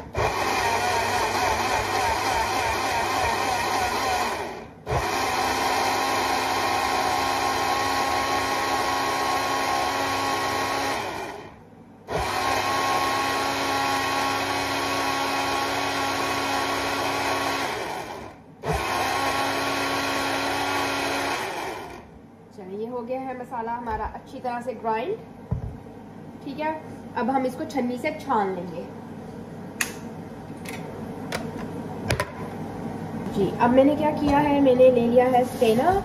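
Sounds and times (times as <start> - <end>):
blender motor grinding: 0.0 - 22.1.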